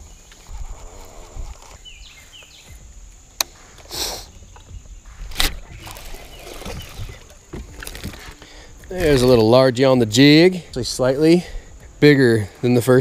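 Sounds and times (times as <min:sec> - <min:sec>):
bird chirping: 0:00.0 - 0:08.8
sharp click: 0:05.3 - 0:05.6.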